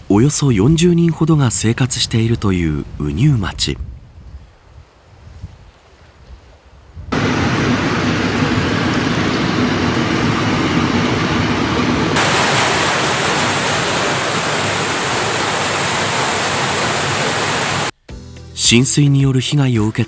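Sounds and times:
floodwater rushing: 7.2s - 17.9s
heavy rain on glass: 12.2s - 17.9s.

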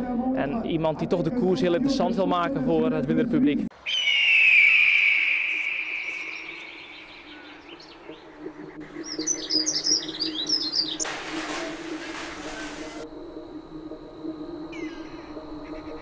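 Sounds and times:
small birds chirping: 3.8s - 11.1s
hiss: 11.0s - 13.1s.

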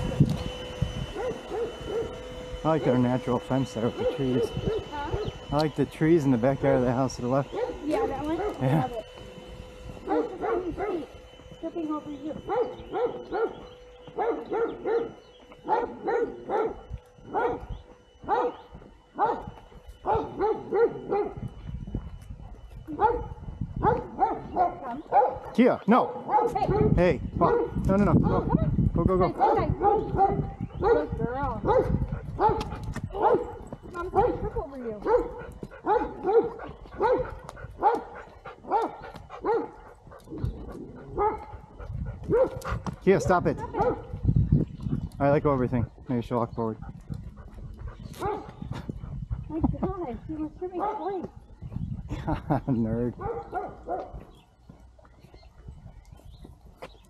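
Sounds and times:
dog barking: 1.2s - 2.2s, 3.9s - 5.3s, 7.5s - 8.6s, 10.0s - 11.1s, 12.4s - 13.6s, 14.2s - 18.6s, 19.2s - 21.4s, 23.0s - 28.7s, 29.3s - 39.9s, 41.0s - 44.2s, 48.1s - 48.8s, 50.7s - 51.2s, 53.1s - 54.3s.

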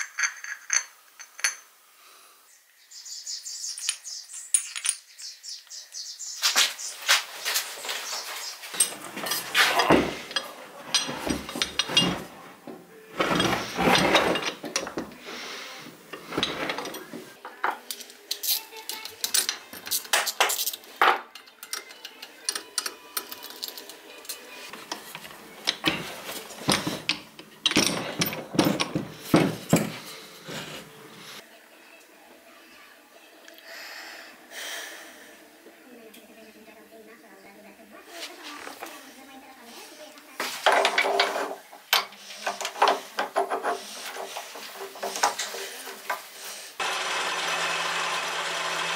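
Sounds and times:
wrench and metal parts clinking: 0.0s - 1.7s, 3.8s - 5.1s, 8.7s - 12.3s, 13.2s - 15.2s, 16.1s - 17.2s, 17.9s - 30.2s.

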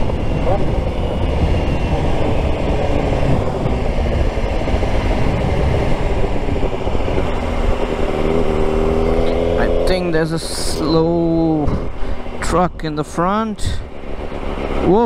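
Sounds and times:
motorcycle engine running: 0.0s - 15.0s
wind rumble on microphone: 0.0s - 15.0s.

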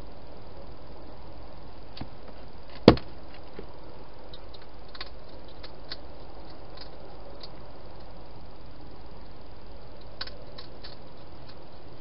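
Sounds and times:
steady hiss: 0.0s - 12.0s
hedgehog crunching food: 10.0s - 11.6s.

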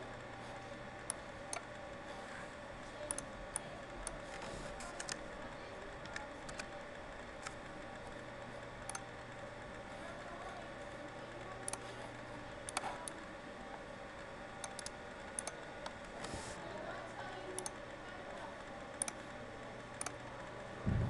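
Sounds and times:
faint electrical hum: 0.0s - 21.0s
computer mouse clicks: 1.0s - 1.7s, 3.0s - 5.2s, 6.0s - 6.8s, 8.8s - 9.1s, 11.6s - 11.9s, 12.6s - 13.2s, 14.6s - 16.4s, 17.5s - 17.8s, 19.0s - 19.3s, 20.0s - 20.2s.

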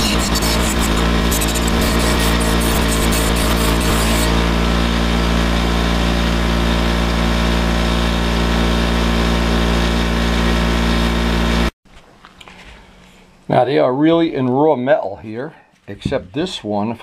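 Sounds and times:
bench grinder motor hum: 0.0s - 11.8s.

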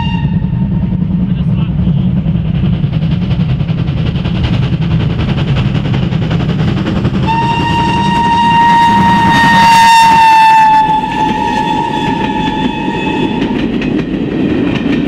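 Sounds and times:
steam whistle: 0.0s - 0.9s, 7.2s - 13.7s
steam locomotive chugging: 0.0s - 15.0s.

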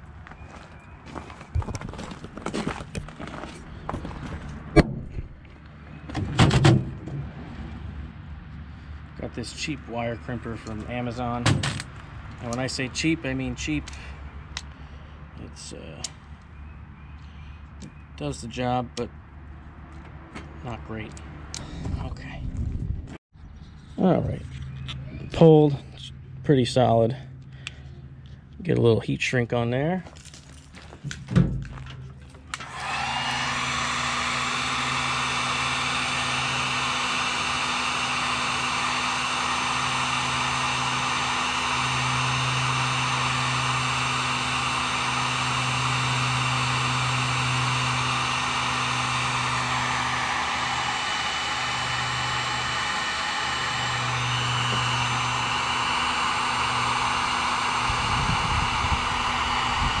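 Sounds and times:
heat gun fan blowing: 8.6s - 19.1s, 32.4s - 60.0s.

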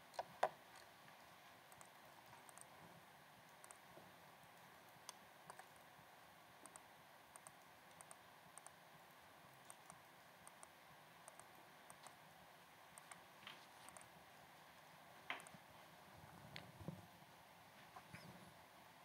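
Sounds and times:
computer mouse clicks: 0.1s - 0.9s, 1.7s - 2.7s, 3.5s - 3.9s, 4.6s - 5.8s, 6.6s - 8.8s, 9.6s - 12.2s, 12.9s - 14.1s, 15.3s - 15.6s.

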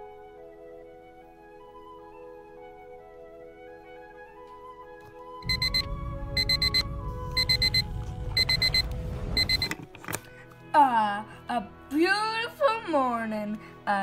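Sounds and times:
soft music: 0.0s - 14.0s
alarm clock high beeps: 5.4s - 9.7s
low rumble: 5.5s - 9.4s.

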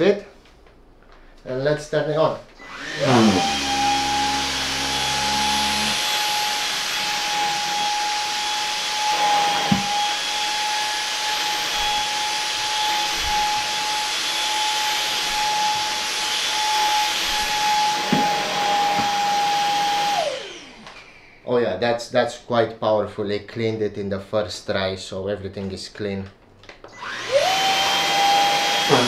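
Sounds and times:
vacuum cleaner motor whine: 2.6s - 21.4s, 26.9s - 29.0s.

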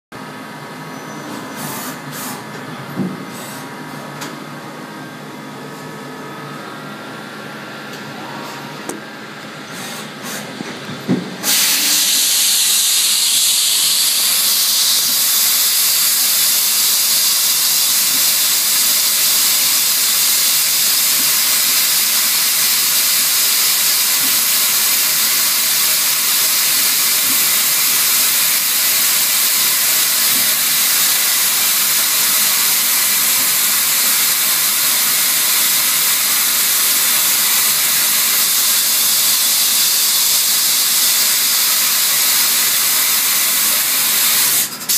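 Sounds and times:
loud hiss of coolant spraying: 11.4s - 44.9s.

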